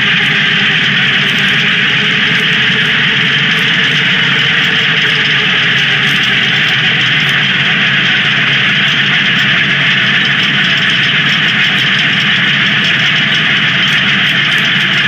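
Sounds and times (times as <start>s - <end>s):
tractor engine running: 0.0s - 15.0s.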